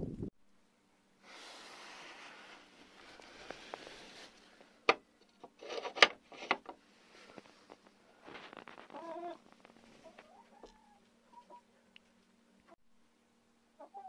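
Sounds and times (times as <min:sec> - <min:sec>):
soft rustling hiss: 0:01.1 - 0:05.4, 0:06.8 - 0:12.7.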